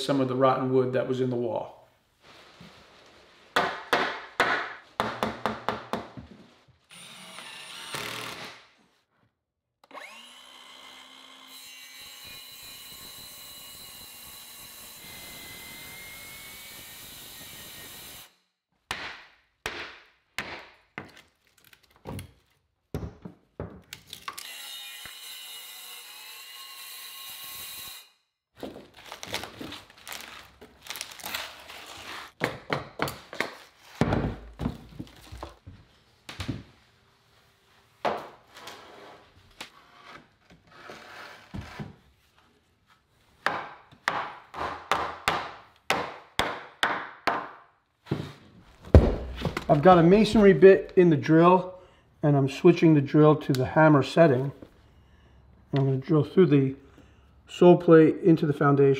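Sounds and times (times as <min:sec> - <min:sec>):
circular saw cutting wood: 0:09.8 - 0:18.4
wood knocks and thunks: 0:34.0 - 0:35.5, 0:48.1 - 0:50.5.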